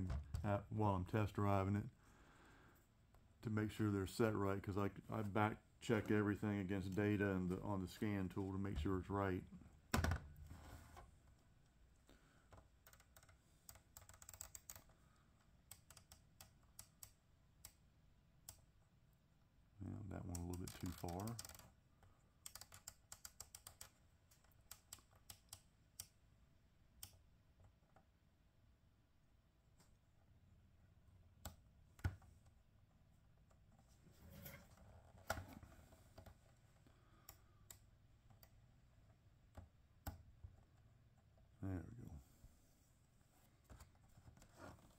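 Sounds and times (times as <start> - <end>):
small plastic clicks: 20.2 - 26.2.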